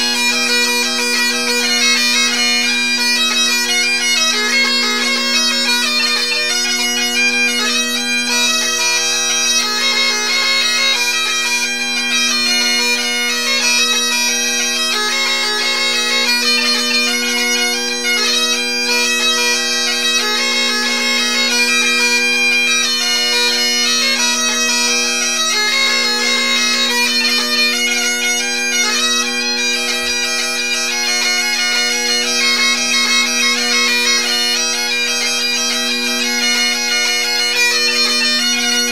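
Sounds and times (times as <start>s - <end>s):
bagpipe drones humming: 0.0s - 38.9s
bagpipes playing a hornpipe: 0.0s - 38.9s.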